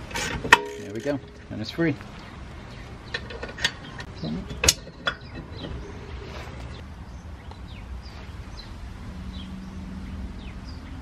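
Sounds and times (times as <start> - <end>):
metal clinks and clanks: 0.0 - 1.7, 3.1 - 5.8.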